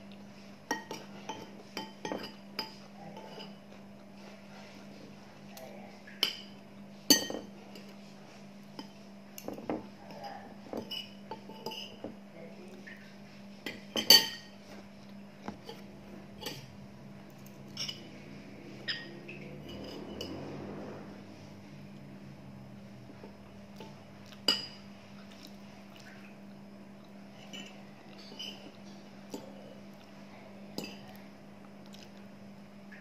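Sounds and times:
cutlery clinking on ceramic plate: 0:07.1 - 0:07.5, 0:13.7 - 0:14.6, 0:17.7 - 0:18.1, 0:18.8 - 0:20.4.

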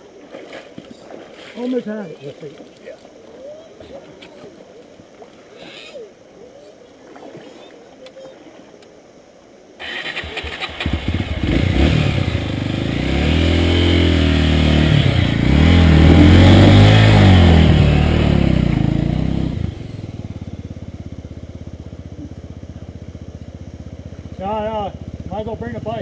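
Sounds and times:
dirt bike engine revving: 0:09.8 - 0:26.0.

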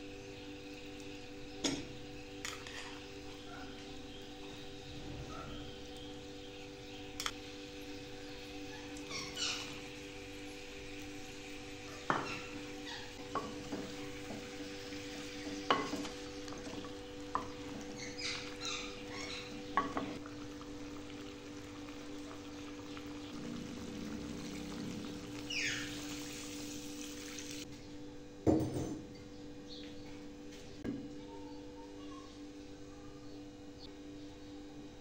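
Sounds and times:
sizzling: 0:00.0 - 0:27.7
steady hum: 0:00.0 - 0:35.0.

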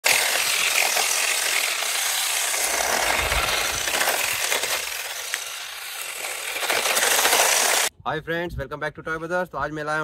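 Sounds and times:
remote control car motor and tyres scraping: 0:00.0 - 0:07.9.

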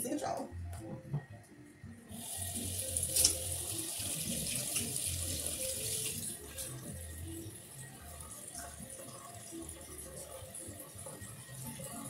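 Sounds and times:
tap water running into sink: 0:02.1 - 0:07.0.

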